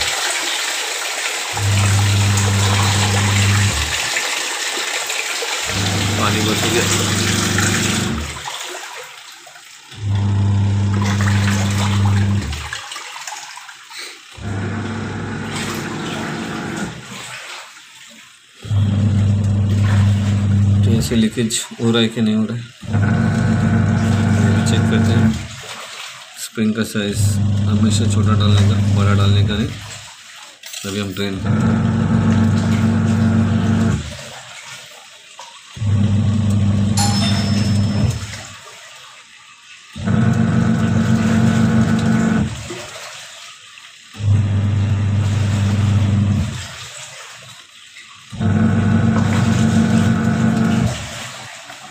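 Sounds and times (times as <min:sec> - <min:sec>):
water churning and sloshing: 0:00.0 - 0:51.9
washing machine motor humming: 0:01.4 - 0:04.4, 0:05.4 - 0:08.6, 0:09.8 - 0:12.8, 0:14.2 - 0:17.5, 0:18.4 - 0:25.7, 0:26.9 - 0:30.0, 0:30.9 - 0:34.4, 0:35.7 - 0:38.7, 0:39.9 - 0:43.2, 0:43.8 - 0:46.9, 0:48.3 - 0:51.4.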